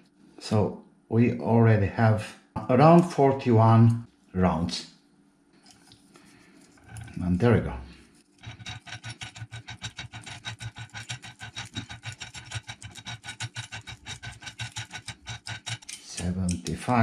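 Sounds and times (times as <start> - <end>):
winding machine clicking rapidly: 8.4 - 16.6.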